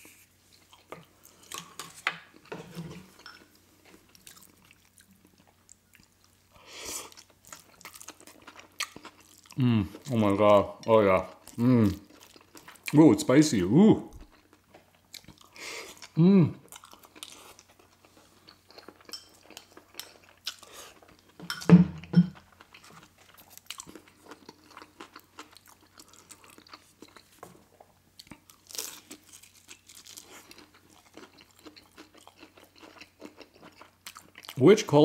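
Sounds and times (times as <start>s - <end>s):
chewing with wet mouth clicks: 7.1s - 9.6s, 22.4s - 27.3s, 28.2s - 34.6s.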